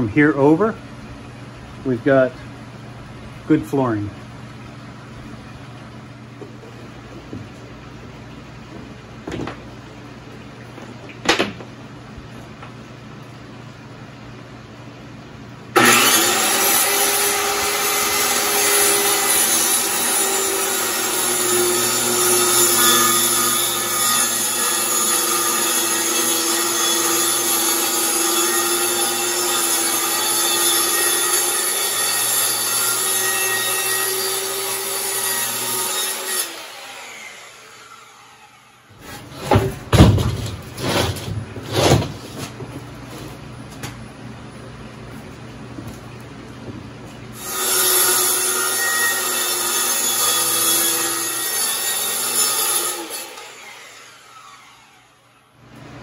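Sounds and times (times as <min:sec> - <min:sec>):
circular saw cutting board: 0:15.8 - 0:43.4
loud knocks: 0:39.4 - 0:42.6.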